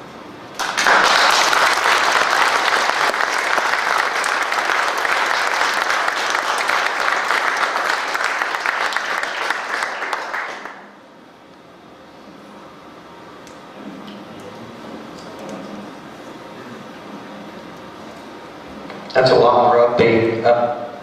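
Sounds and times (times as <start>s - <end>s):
audience applauding: 0.6s - 11.0s.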